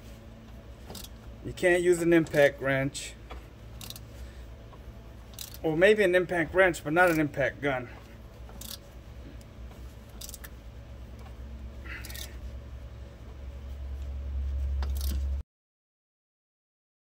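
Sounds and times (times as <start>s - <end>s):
socket wrench clinking on metal: 5.3s - 5.6s.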